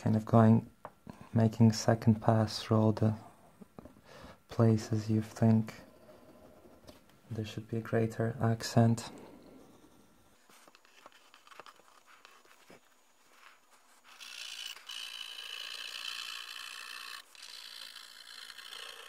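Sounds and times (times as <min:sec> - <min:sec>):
pencil scratching on paper: 0:09.4 - 0:19.0.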